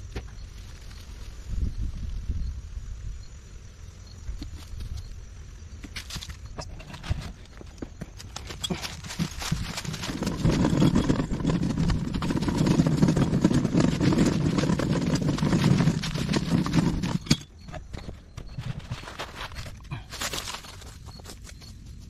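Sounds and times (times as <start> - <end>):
rustling in leaves: 0.4 - 2.4, 8.2 - 12.8
cart rattling and rumbling: 6.6 - 21.2
footsteps crunching dry leaves: 8.2 - 10.6.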